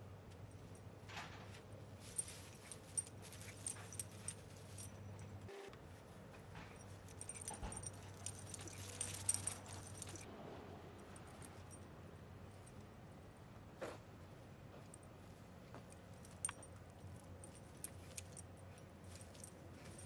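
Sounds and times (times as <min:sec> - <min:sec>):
dogs scuffling with clicks: 0:06.6 - 0:10.3.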